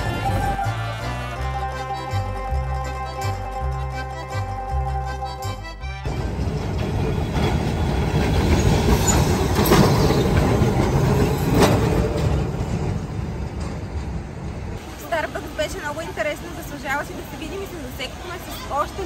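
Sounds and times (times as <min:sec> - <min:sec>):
background music: 0:00.0 - 0:07.4.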